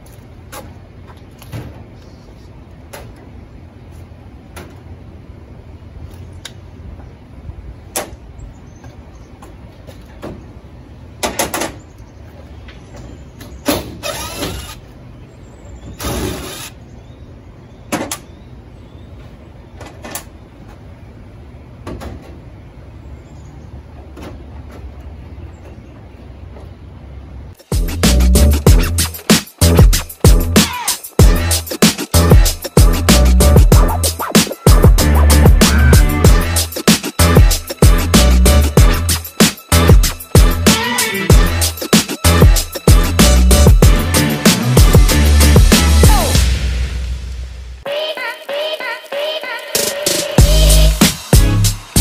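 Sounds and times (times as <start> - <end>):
low hum: 44.9 - 47.8.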